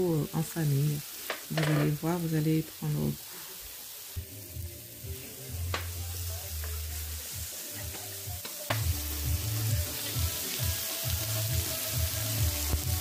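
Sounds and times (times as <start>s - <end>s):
food sizzling on griddle: 0.0s - 13.0s
background music with bass: 4.2s - 13.0s.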